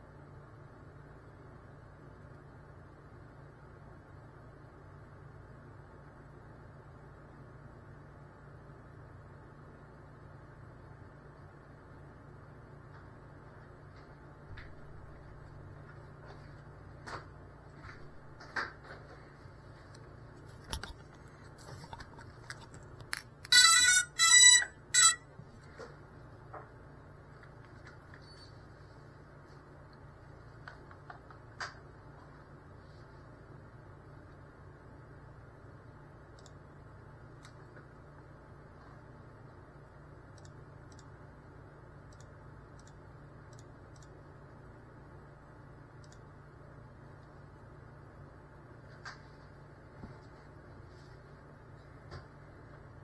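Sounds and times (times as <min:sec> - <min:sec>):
faint low hum: 0:00.0 - 0:53.0
soft clicks: 0:36.3 - 0:36.6, 0:40.3 - 0:41.2, 0:42.1 - 0:44.2, 0:46.0 - 0:46.3.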